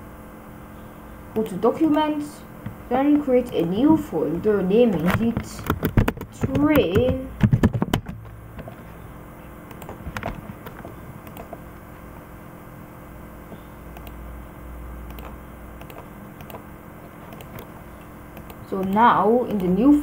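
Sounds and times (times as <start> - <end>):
low steady hum: 0.0 - 20.0
keyboard and mouse clicks: 4.9 - 8.8, 9.7 - 11.8, 14.0 - 14.2, 15.1 - 16.6, 17.3 - 19.8.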